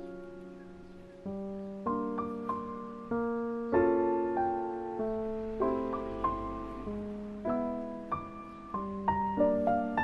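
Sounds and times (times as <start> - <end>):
slow piano melody: 0.0 - 10.0.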